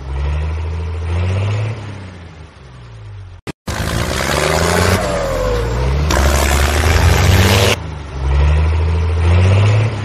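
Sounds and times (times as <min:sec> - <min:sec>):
tractor engine revving: 0:03.6 - 0:10.0.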